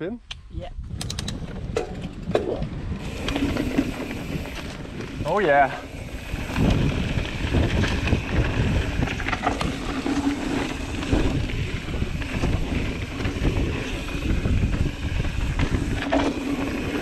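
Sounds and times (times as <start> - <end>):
wind buffeting microphone: 0.3 - 17.0
bike knocks and rattles: 1.0 - 5.6
tyres rumbling on dirt: 1.4 - 17.0.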